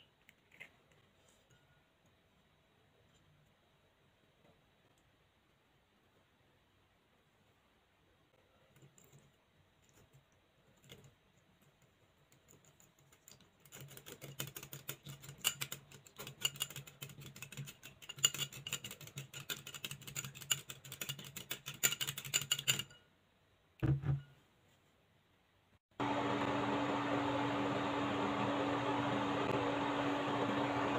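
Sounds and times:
whisk clicking against glass bowl: 13.7s - 23.0s.

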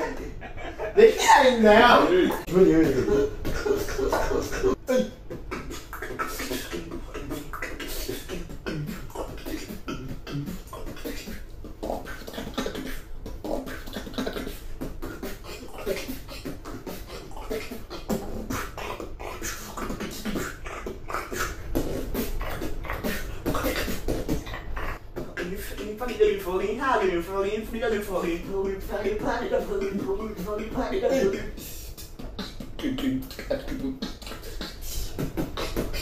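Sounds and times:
person beatboxing: 0.0s - 36.0s.

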